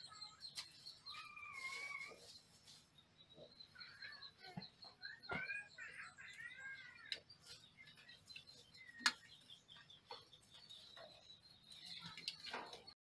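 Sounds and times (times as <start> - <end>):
faint high chirps: 0.0 - 13.0.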